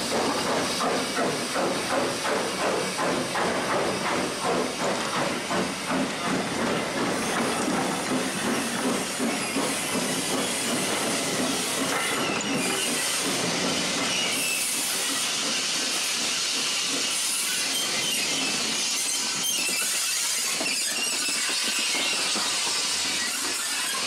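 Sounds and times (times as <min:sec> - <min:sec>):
steam hissing: 0:00.0 - 0:24.0
steam locomotive passing: 0:00.0 - 0:24.0
train coaches rolling over rails: 0:00.0 - 0:24.0.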